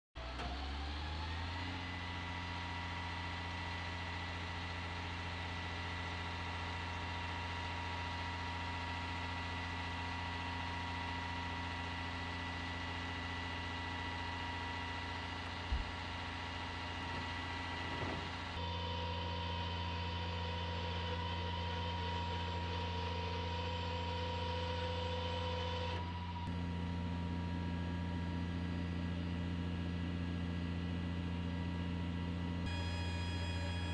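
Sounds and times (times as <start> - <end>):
low diesel engine hum: 0.2 - 33.9.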